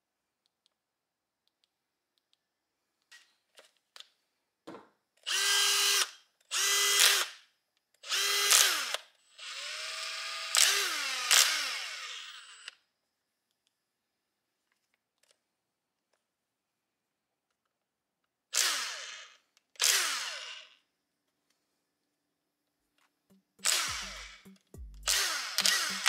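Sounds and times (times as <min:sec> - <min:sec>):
screwdriver motor running: 0:05.3 - 0:07.4, 0:08.0 - 0:12.8, 0:18.6 - 0:20.8, 0:23.6 - 0:26.0.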